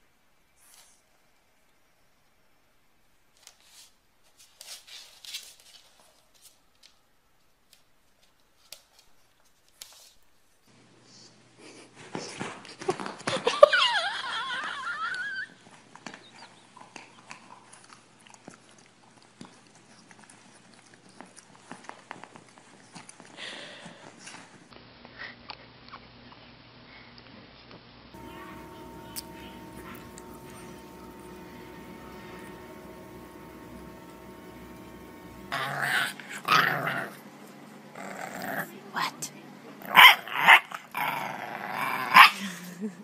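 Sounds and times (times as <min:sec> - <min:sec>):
faint clicks and scuffs: 0:03.3 - 0:10.6
steady low hum: 0:28.2 - 0:39.9.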